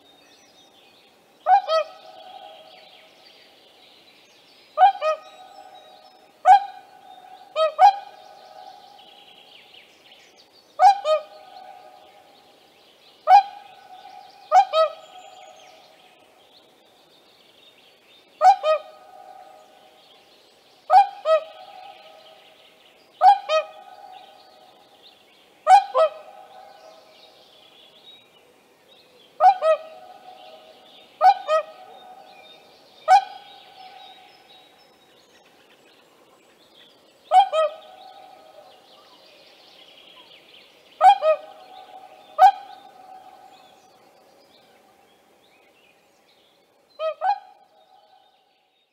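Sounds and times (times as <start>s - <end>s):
swan bugling honk calls: 1.5s - 2.0s, 6.4s - 6.9s, 7.5s - 8.2s, 10.8s - 11.4s, 14.5s - 15.1s, 18.4s - 19.1s, 23.2s - 23.9s, 25.7s - 26.5s, 29.4s - 30.2s, 31.2s - 32.2s, 33.1s - 33.5s, 37.3s - 37.9s, 41.0s - 43.2s, 47.0s - 47.7s.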